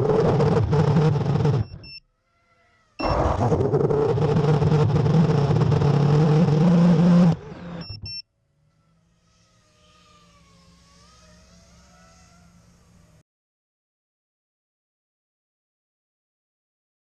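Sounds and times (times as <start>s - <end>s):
drone motors whirring: 0.0s - 13.2s
two-tone electronic beeps: 1.5s - 2.0s, 7.8s - 8.2s.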